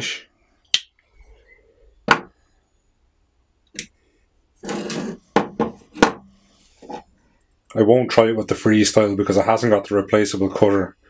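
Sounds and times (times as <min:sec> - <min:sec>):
tools knocking on wooden bench: 0:02.1 - 0:02.3, 0:05.3 - 0:06.3
metal scraping rub: 0:04.6 - 0:07.1.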